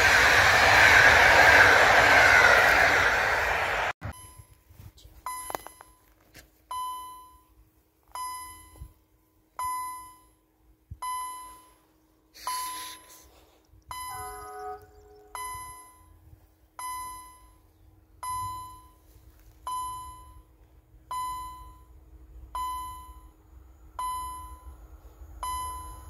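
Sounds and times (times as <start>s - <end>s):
passing train rumble: 0.0s - 4.0s
short electronic tones: 12.4s - 13.2s, 13.9s - 15.9s
level crossing warning bell: 12.4s - 13.3s, 13.9s - 20.5s, 21.1s - 22.0s, 22.6s - 26.0s.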